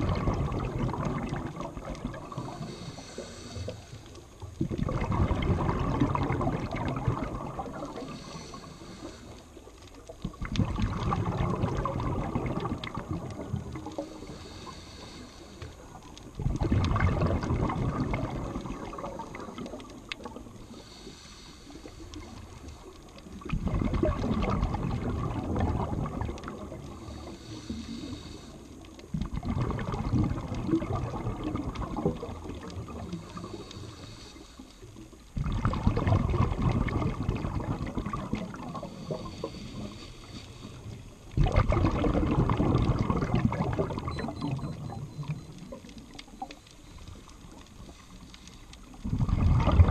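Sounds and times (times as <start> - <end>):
exhaled bubbles rushing: 0.0 - 3.4, 4.4 - 8.6, 10.2 - 14.6, 15.9 - 20.8, 21.9 - 27.4, 29.1 - 33.7, 35.3 - 48.0, 48.9 - 49.9
regulator inhale hiss: 2.4 - 4.4, 7.9 - 9.8, 13.9 - 16.0, 20.6 - 23.1, 26.8 - 29.0, 33.0 - 35.2, 38.7 - 41.2, 46.5 - 49.0.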